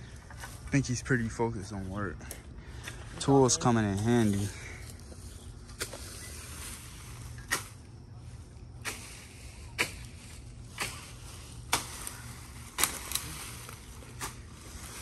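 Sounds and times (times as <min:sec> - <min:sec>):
hand tool hacking into ground: 0:07.4 - 0:07.8, 0:09.8 - 0:14.4.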